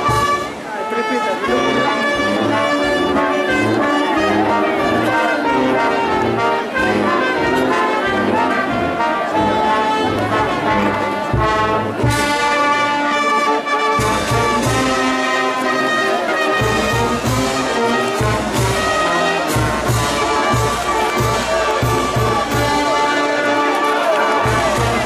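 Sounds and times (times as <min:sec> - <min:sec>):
brass band playing: 0:00.0 - 0:25.0.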